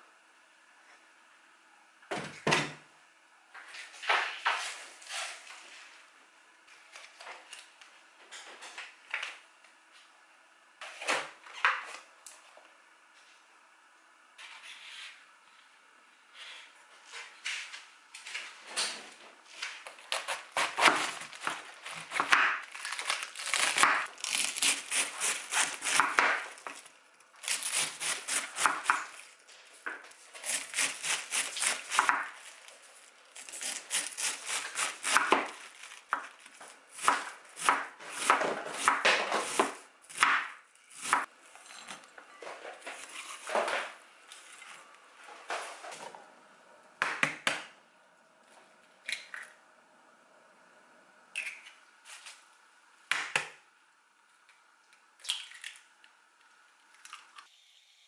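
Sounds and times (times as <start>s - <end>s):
knife chopping on cutting board: 24.6s - 26.4s, 30.5s - 32.3s, 33.9s - 36.3s, 37.0s - 41.3s.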